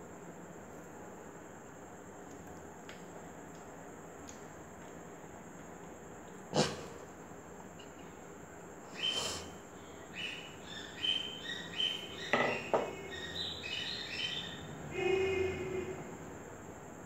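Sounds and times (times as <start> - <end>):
small birds chirping: 8.9 - 14.8.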